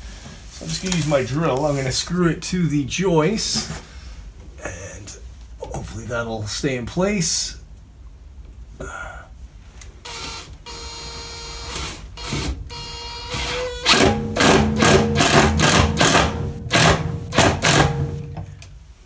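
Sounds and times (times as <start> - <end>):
impact driver driving screw into wood: 11.6 - 18.3.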